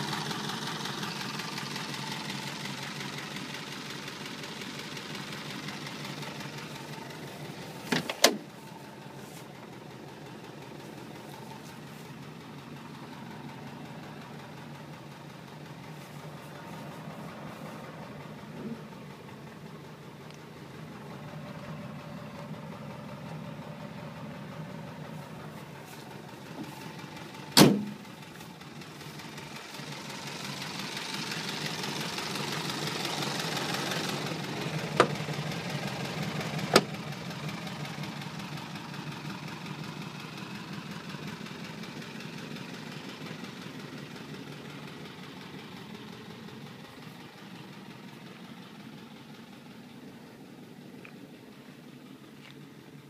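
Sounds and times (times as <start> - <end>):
car engine idling: 0.0 - 53.0
sharp thump: 27.6 - 28.0.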